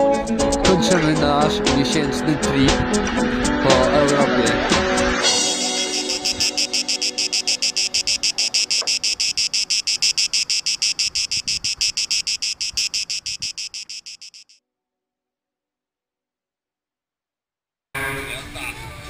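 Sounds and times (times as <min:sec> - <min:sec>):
cicada singing: 0:05.6 - 0:14.6.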